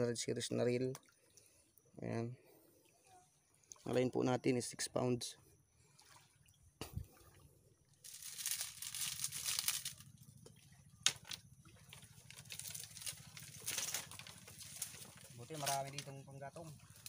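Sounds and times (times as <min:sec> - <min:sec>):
rustling crinkling: 0:08.0 - 0:10.2, 0:11.1 - 0:16.2.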